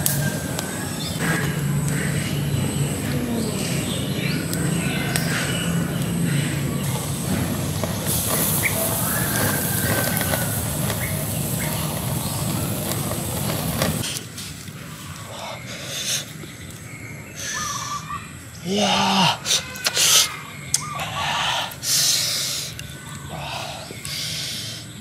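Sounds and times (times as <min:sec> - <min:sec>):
wood fire crackling: 0:00.0 - 0:17.3
birds chirping: 0:00.0 - 0:25.0.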